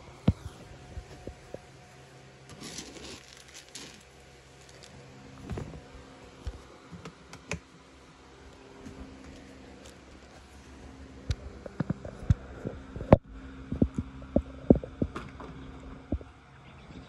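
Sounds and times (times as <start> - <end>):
plastic rustling: 2.4 - 6.6.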